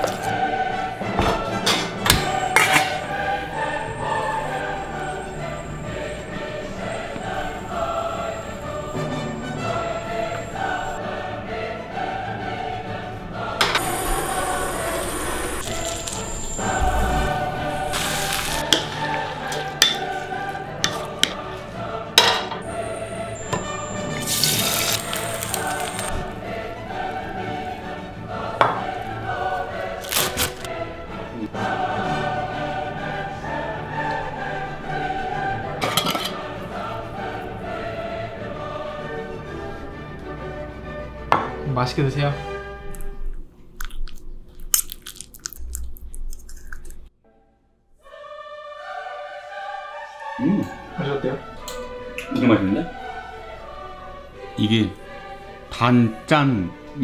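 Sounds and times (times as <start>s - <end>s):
background music: 0.0s - 43.7s, 47.2s - 57.0s
egg sizzling in oil: 13.8s - 18.8s, 23.4s - 26.1s.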